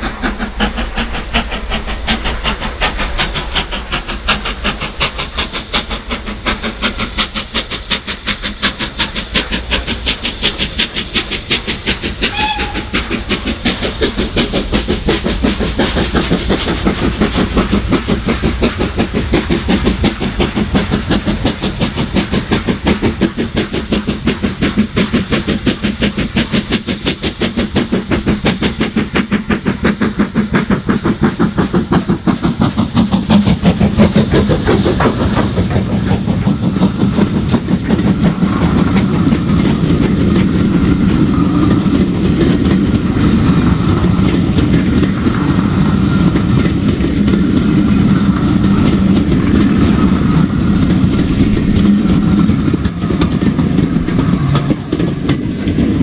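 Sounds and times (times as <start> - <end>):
steam locomotive exhaust bark: 8.7 - 13.9.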